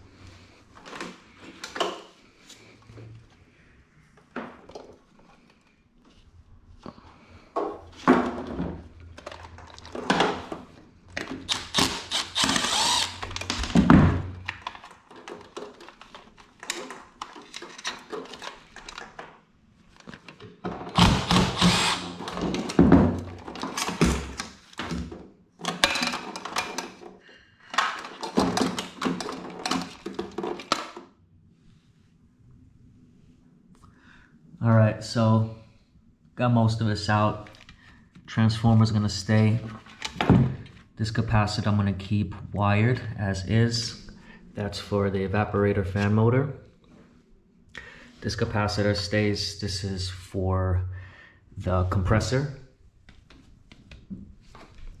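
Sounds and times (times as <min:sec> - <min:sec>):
cordless drill running: 0:11.5 - 0:13.5, 0:21.0 - 0:22.3.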